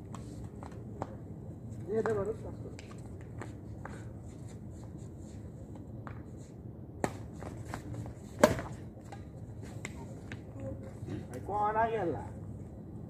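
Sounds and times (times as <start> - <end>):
racket hitting shuttlecock: 7.0 - 9.2.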